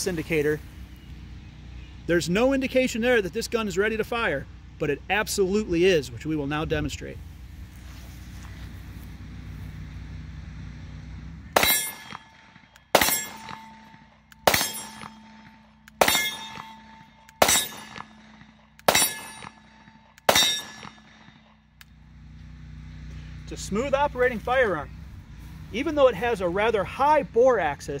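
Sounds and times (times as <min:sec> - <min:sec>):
pistol shots: 0:11.6 - 0:21.4.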